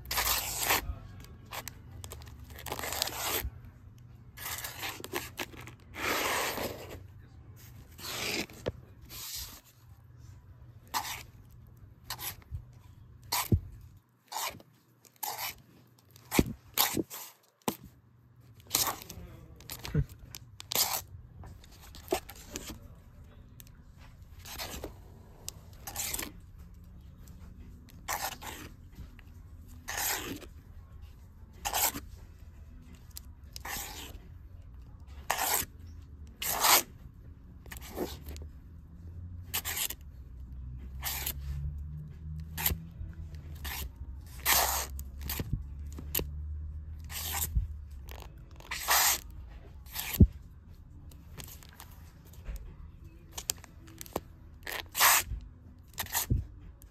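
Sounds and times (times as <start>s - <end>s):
plastic comic sleeves rustling: 47.1s - 49.3s.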